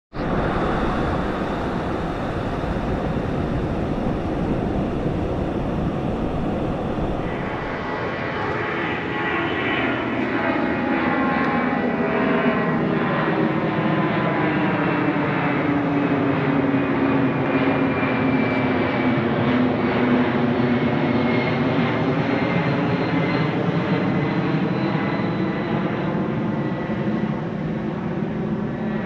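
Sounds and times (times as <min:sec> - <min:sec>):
high steady jet tones: 0:00.1 - 0:12.6
jet engines roaring: 0:00.1 - 0:29.0.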